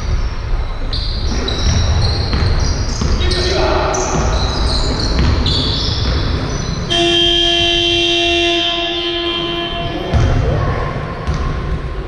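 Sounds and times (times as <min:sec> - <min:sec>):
basketball bouncing: 0:01.3 - 0:12.0
scoreboard buzzer: 0:06.9 - 0:10.2.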